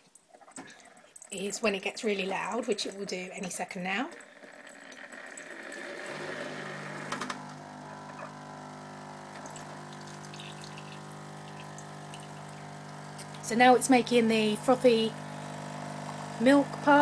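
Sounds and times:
pump humming: 3.9s - 17.0s
coffee machine watery hiss: 5.6s - 17.0s.

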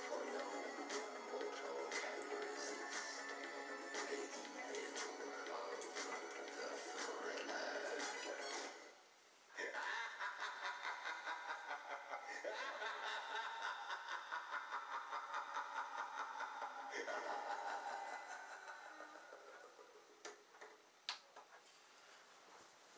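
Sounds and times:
person laughing: 9.6s - 20.2s.

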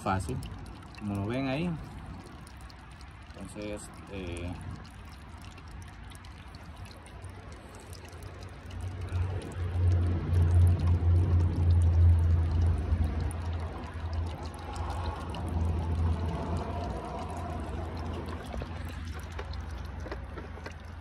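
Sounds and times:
oil pouring into plastic jug: 0.0s - 21.0s
low rumble: 9.0s - 20.0s.

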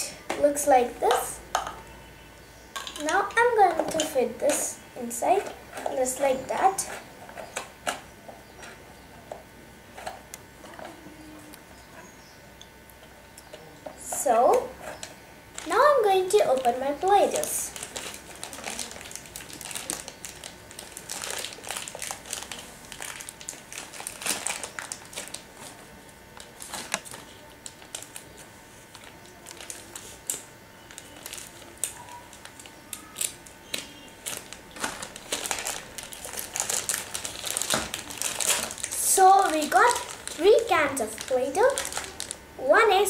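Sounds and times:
plastic shrink-wrap crinkling: 14.1s - 42.4s.

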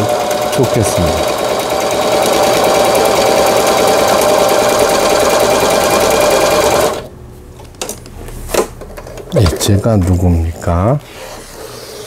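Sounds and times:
sewing machine running fast: 0.0s - 7.1s.

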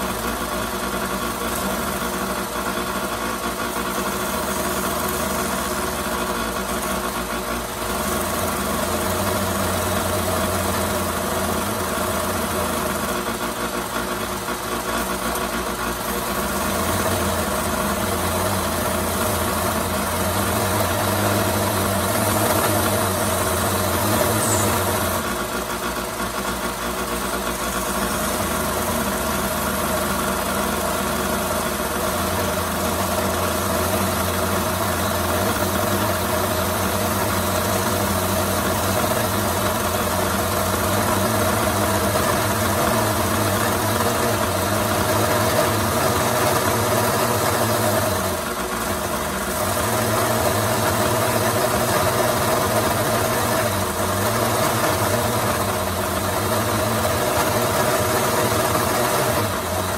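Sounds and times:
belt sander grinding plastic: 16.8s - 25.4s.

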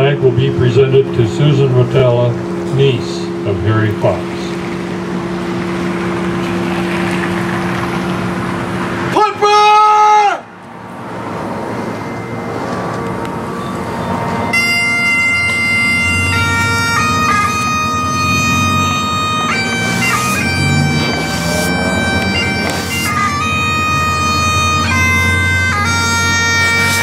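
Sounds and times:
bagpipe drones: 0.0s - 27.0s
bagpipe chanter melody: 11.9s - 27.0s.

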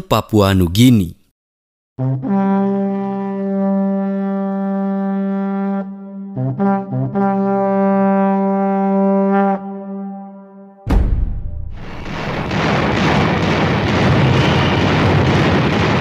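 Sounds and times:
brass fanfare: 2.0s - 10.6s, 14.0s - 15.3s.

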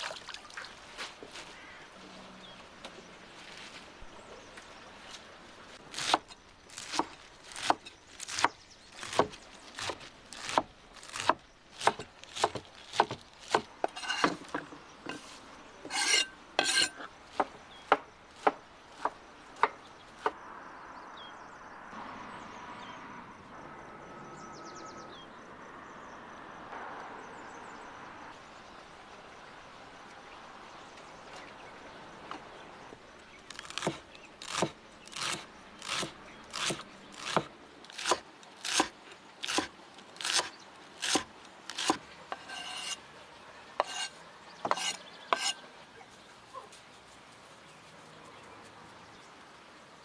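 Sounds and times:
knife chopping herbs on wooden board: 15.9s - 19.8s, 33.6s - 43.0s, 43.8s - 45.6s.

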